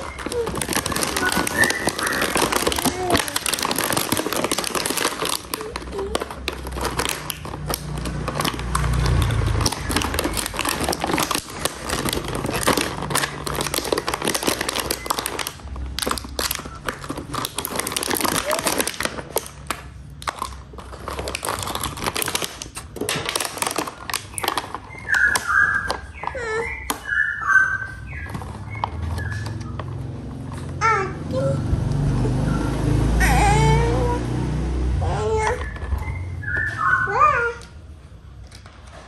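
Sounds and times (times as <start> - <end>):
plastic packaging crinkling: 0.0 - 30.7.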